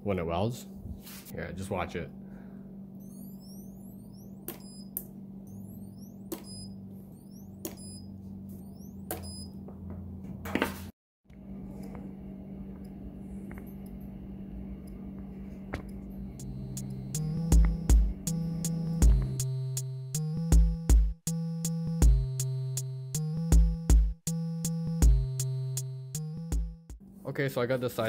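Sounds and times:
steady low hum: 0:00.0 - 0:10.4, 0:11.3 - 0:20.9.

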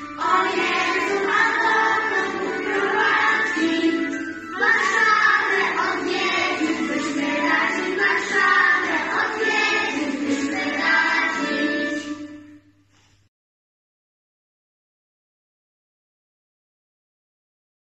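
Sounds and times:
children's choir singing: 0:00.0 - 0:12.7.

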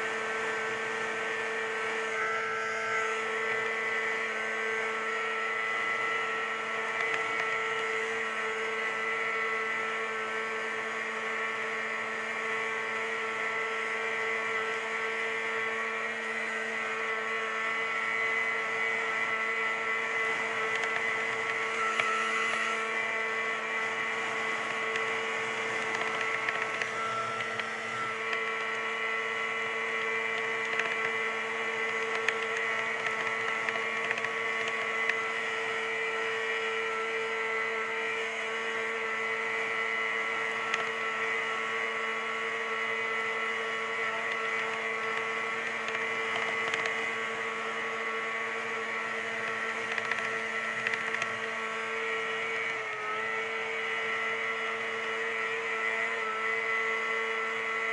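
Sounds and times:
snowmobile engine cruising: 0:00.0 - 0:57.9.

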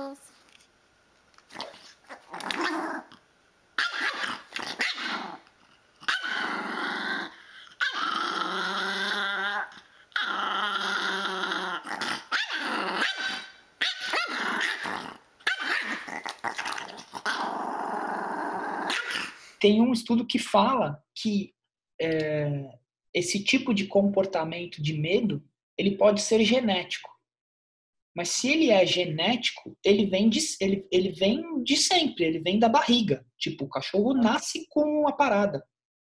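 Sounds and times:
small dog growling: 0:01.5 - 0:03.2, 0:03.8 - 0:19.6.

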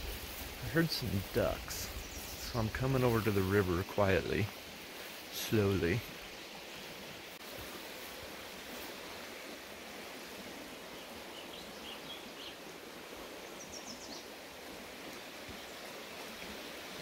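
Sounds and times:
creek running over stones: 0:00.0 - 0:17.0
small birds chirping: 0:00.3 - 0:06.9, 0:10.8 - 0:14.3.

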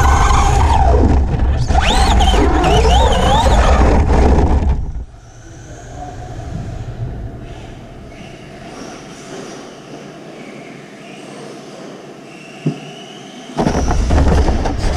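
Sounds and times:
toy truck motor whine: 0:00.0 - 0:04.4
tyres rumbling over dirt: 0:00.0 - 0:08.9.

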